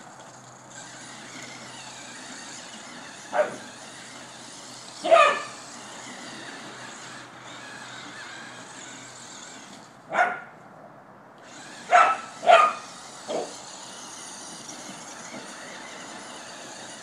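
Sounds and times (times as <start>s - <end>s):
electric toy car hiss: 0.7s - 9.9s, 11.4s - 17.0s
dog barking: 5.1s - 5.5s, 10.1s - 10.5s, 11.9s - 13.5s.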